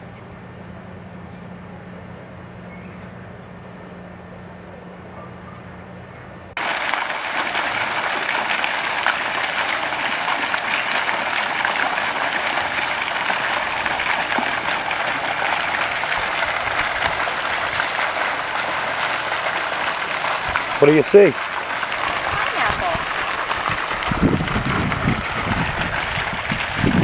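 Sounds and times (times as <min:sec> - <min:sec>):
fountain splashing into pond: 0:06.6 - 0:27.0.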